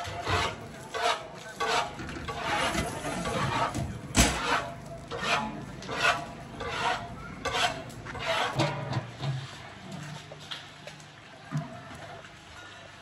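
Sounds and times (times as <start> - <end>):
rhythmic scraping strokes: 0.0 - 9.2.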